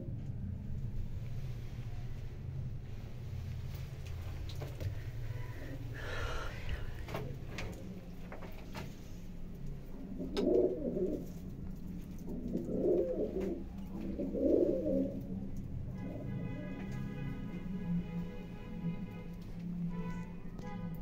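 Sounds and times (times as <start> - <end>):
pigeons cooing: 9.8 - 16.3.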